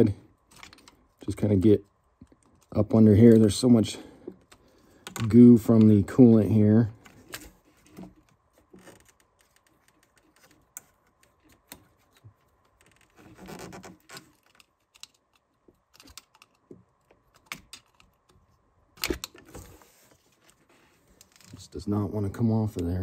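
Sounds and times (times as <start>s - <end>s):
small clicks and rustles of hands: 0.4s - 1.4s, 7.0s - 18.5s.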